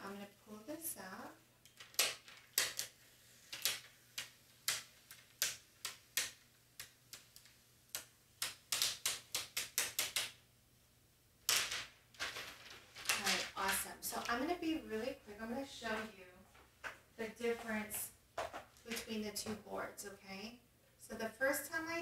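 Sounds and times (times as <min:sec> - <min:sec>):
plastic tape crackling: 0:01.6 - 0:10.4, 0:11.5 - 0:14.8
plastic sheet crinkling rustle: 0:11.6 - 0:14.7.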